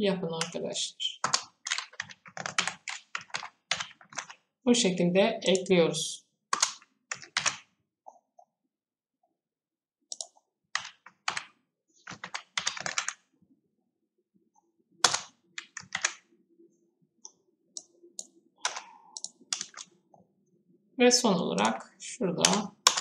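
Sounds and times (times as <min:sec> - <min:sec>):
keyboard keys clicking: 0:01.2 - 0:04.4, 0:06.5 - 0:07.6, 0:12.1 - 0:13.2, 0:15.0 - 0:16.2, 0:17.8 - 0:19.9, 0:22.4 - 0:23.0.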